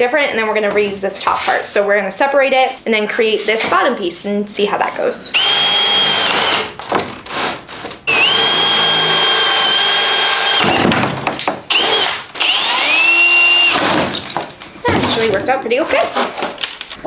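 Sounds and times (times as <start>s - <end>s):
cordless drill whining: 5.3s - 6.7s, 8.1s - 10.9s, 11.7s - 13.9s.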